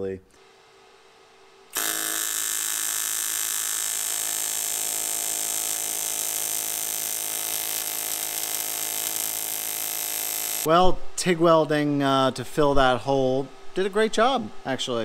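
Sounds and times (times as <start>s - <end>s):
welding arc buzzing: 1.7s - 10.7s.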